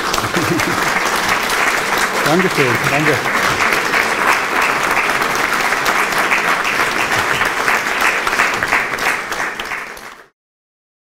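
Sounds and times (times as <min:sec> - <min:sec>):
audience applause: 0:00.0 - 0:10.3.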